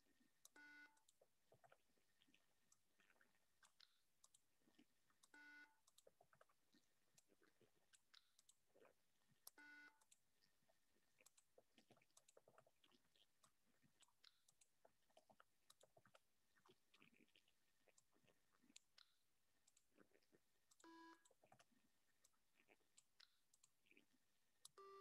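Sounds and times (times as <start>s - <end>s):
faint mouse clicks: 0.4s - 8.6s, 9.4s - 10.5s, 11.2s - 25.0s
short buzzy beeps: 24.8s - 25.0s.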